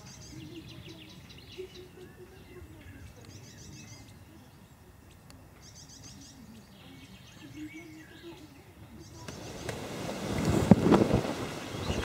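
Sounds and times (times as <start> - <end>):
songbird singing: 0.0 - 12.0
wind noise on microphone: 7.6 - 12.0.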